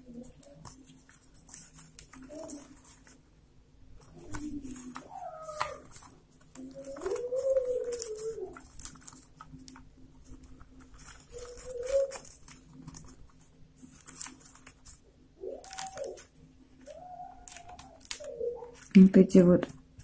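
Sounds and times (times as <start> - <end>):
paper tubes rustling and clicking: 0.0 - 3.3, 4.0 - 20.0
low cooing sounds: 2.1 - 2.9, 4.1 - 9.0, 11.0 - 13.1, 15.2 - 18.9.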